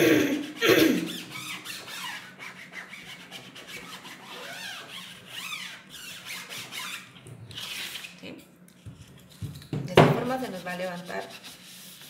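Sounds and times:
cloth rubbing on vinyl: 0.4 - 8.2.

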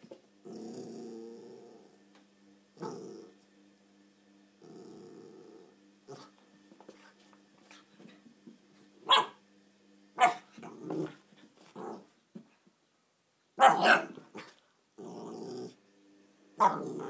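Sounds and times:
puppy growling: 0.4 - 2.1, 2.8 - 3.4, 4.6 - 6.4, 10.2 - 12.1, 13.6 - 15.8, 16.6 - 17.0
puppy yapping: 9.1 - 9.4, 10.2 - 10.5, 13.6 - 14.2.

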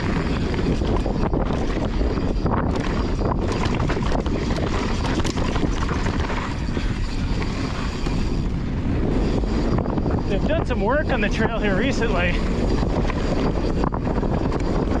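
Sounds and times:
bike knocks and rattles: 0.0 - 8.4
wind noise on microphone: 0.0 - 15.0.

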